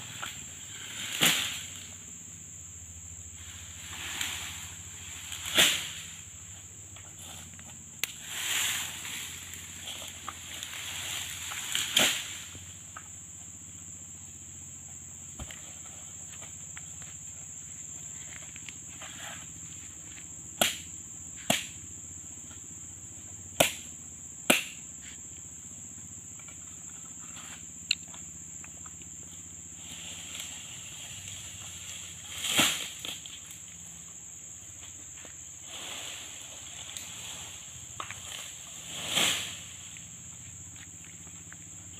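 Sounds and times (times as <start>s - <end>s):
high-pitched insect drone: 0.0s - 41.9s.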